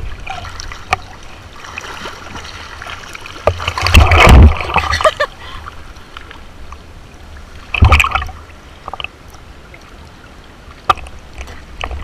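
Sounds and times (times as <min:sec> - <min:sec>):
water lapping against camera housing: 0:00.0 - 0:05.3
water splash: 0:00.0 - 0:05.3, 0:07.7 - 0:09.1.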